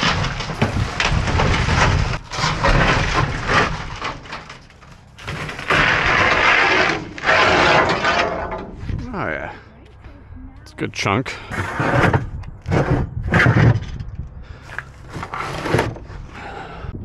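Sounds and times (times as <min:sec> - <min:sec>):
metal strips scraping and clattering: 0:00.0 - 0:08.8.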